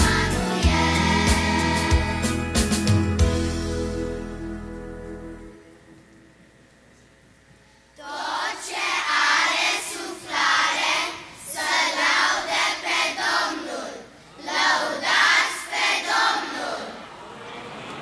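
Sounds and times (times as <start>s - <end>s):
children's choir singing: 0.0s - 2.5s, 8.0s - 17.3s.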